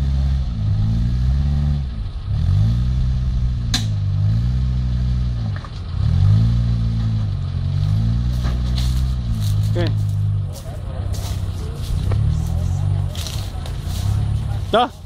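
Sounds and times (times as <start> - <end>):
off-road vehicle engine revving: 0.0 - 15.0.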